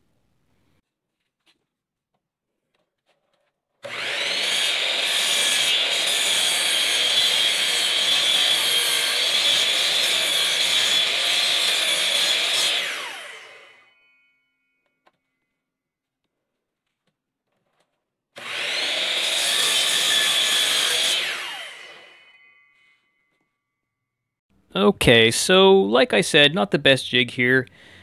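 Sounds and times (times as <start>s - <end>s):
miter saw cutting wood: 3.8s - 14.1s, 18.4s - 23.2s.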